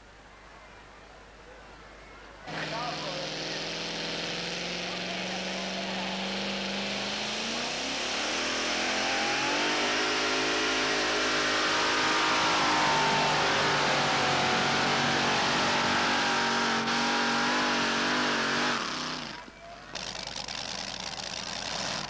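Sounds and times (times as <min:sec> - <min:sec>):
pulling truck engine at full throttle: 0:02.5 - 0:22.0.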